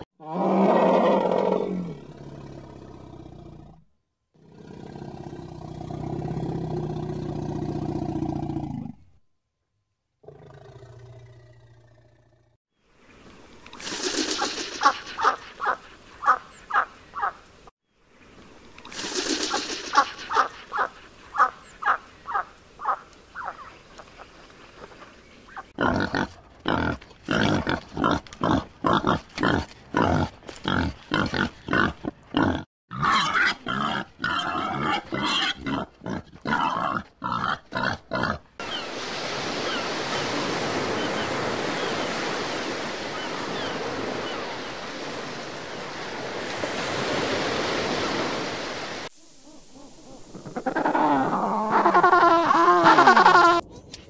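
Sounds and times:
duck calls: 14.3s - 17.4s, 19.4s - 23.6s
pigs grunting: 25.8s - 38.4s.

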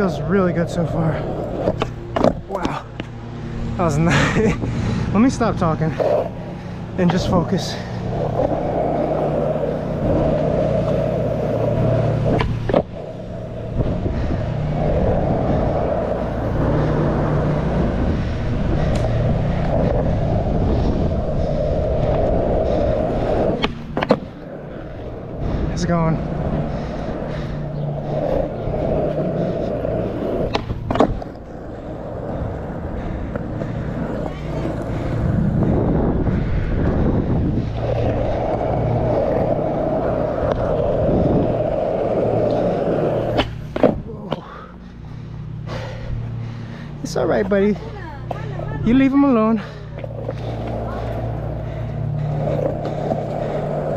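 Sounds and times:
skateboard wheels rolling on asphalt: 0.0s - 53.9s
skateboard clack: 0.8s - 3.2s, 7.9s - 13.7s, 21.9s - 24.9s, 27.9s - 35.3s, 37.7s - 44.4s.

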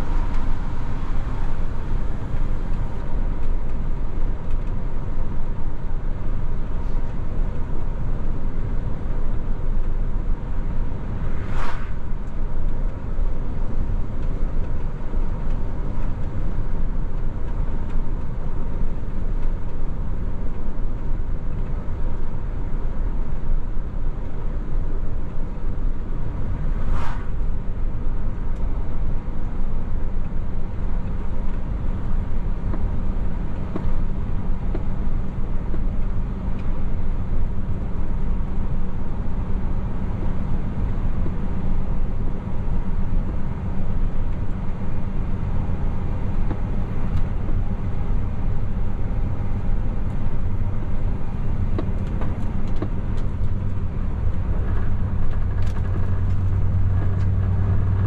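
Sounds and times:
truck engine and road rumble: 0.0s - 58.0s.

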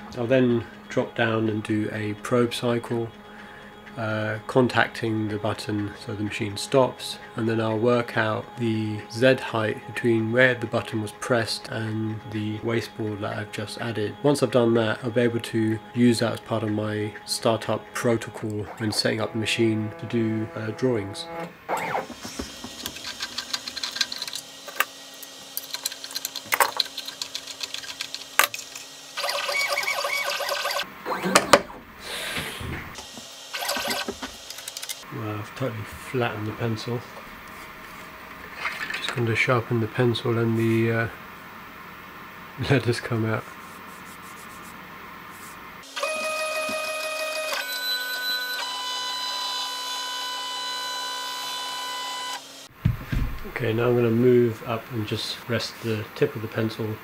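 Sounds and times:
motor whine: 0.0s - 35.0s, 45.8s - 54.3s
stepper motors humming: 0.0s - 40.9s.

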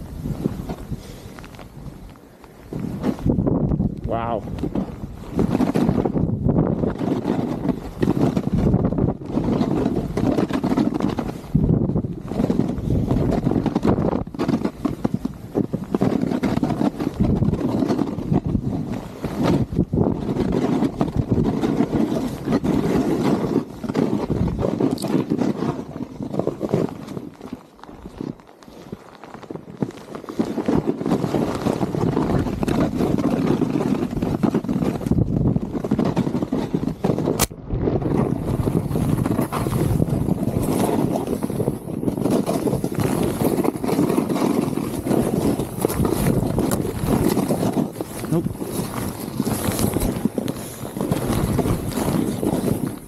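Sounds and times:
snowboard scraping over snow: 0.0s - 53.0s
wind buffeting microphone: 0.0s - 53.0s.

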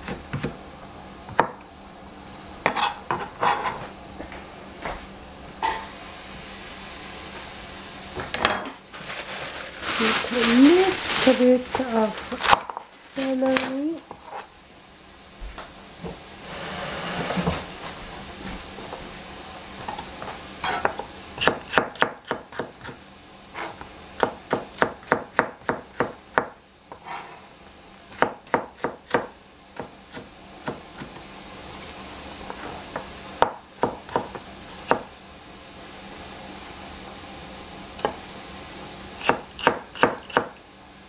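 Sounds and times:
knife chopping celery on board: 0.0s - 0.6s, 20.7s - 23.0s, 23.6s - 27.2s, 28.1s - 31.2s, 33.0s - 35.1s, 39.2s - 40.6s.

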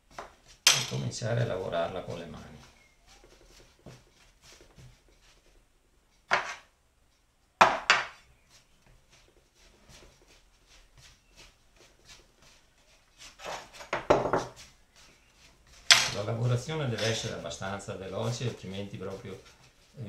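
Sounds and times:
dough rubbing and pressing: 0.0s - 6.8s, 7.6s - 20.0s
dough thumps on worktop: 7.6s - 8.2s, 13.9s - 14.6s.

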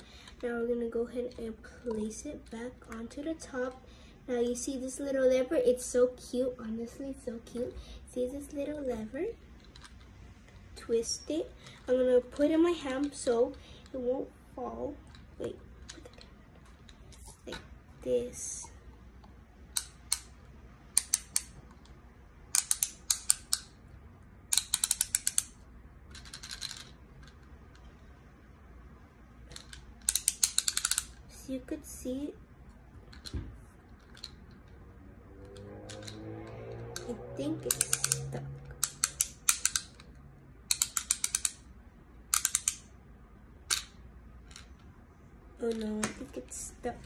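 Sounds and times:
ratcheting plastic clicks: 20.9s - 23.8s, 24.5s - 27.9s, 29.5s - 31.2s, 35.9s - 41.6s, 42.3s - 42.8s.

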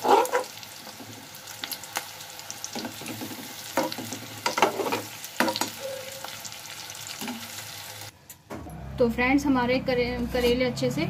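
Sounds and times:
metal spatula scraping a pan: 0.0s - 0.6s, 3.8s - 6.4s
food sizzling in oil: 0.0s - 8.1s.

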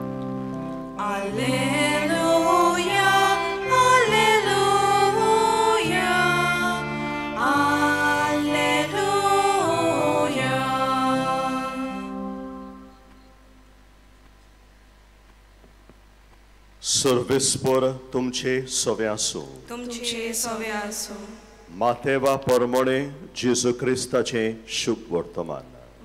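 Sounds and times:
church singing: 0.0s - 13.0s
electronic keyboard chords: 0.0s - 13.3s.

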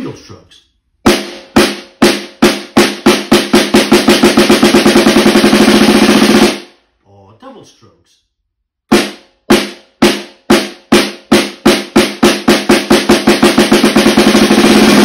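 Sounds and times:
snare drum double-stroke roll: 1.0s - 6.7s, 8.9s - 15.0s.

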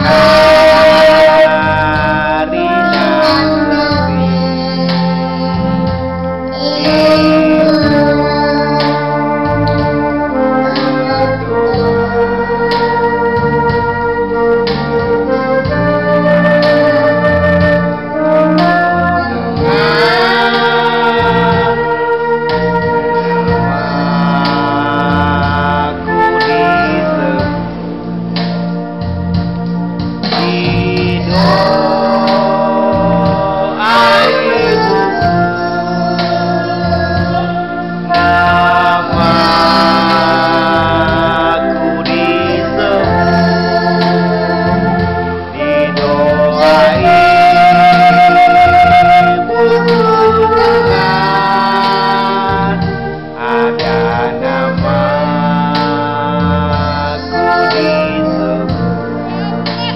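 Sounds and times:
girl singing a hymn: 0.0s - 12.3s, 30.2s - 59.9s
electronic organ accompaniment: 0.0s - 59.9s.

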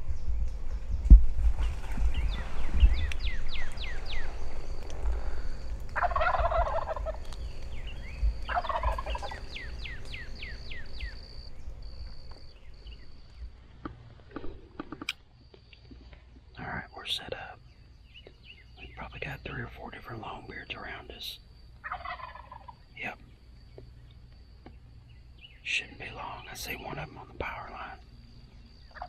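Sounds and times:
wind rumble on microphone: 0.0s - 20.6s
birds whistling: 0.1s - 13.6s
turkey gobbling: 6.0s - 7.3s, 8.5s - 10.2s, 21.8s - 22.8s.

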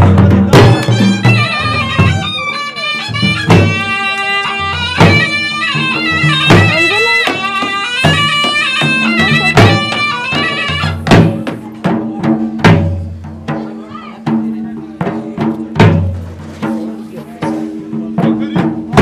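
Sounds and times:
drums beaten hard: 0.0s - 19.0s
reed pipe melody: 0.0s - 19.0s.

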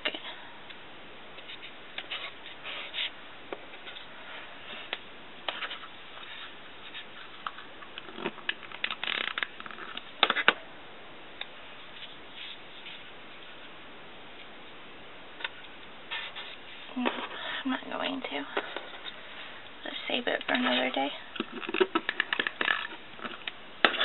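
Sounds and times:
paper rustling: 16.1s - 17.5s.

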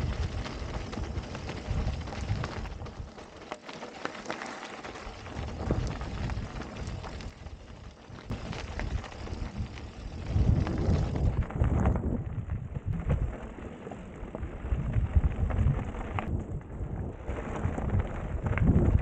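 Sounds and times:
wind buffeting microphone: 0.0s - 3.2s, 5.0s - 19.0s
small clicks and rattles: 0.0s - 12.1s
bike tyres crunching on gravel: 0.0s - 19.0s.

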